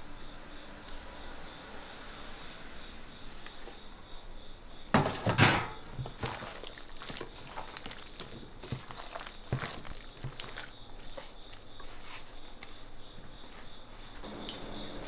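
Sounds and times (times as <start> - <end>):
wet batter squelching: 5.8 - 13.6
faint high whine: 14.1 - 15.0.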